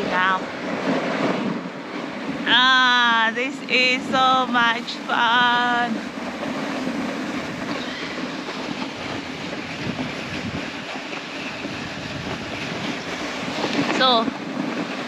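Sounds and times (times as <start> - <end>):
sledge runners scraping on snow: 3.7 - 15.0.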